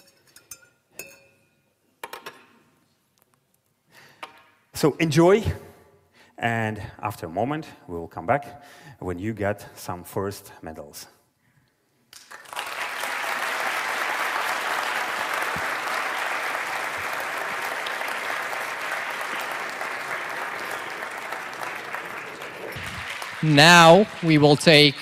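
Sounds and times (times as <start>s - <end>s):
audience applauding: 12.2s - 25.0s.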